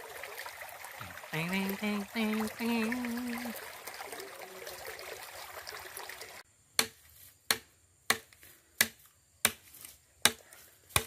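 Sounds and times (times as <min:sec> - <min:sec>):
machete chopping bamboo: 0:06.8 - 0:11.0.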